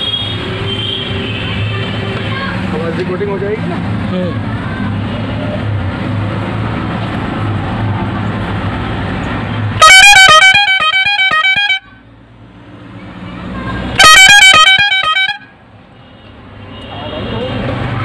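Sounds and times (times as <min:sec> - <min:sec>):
horn alternating notes: 0:09.8 - 0:11.9, 0:14.0 - 0:15.5.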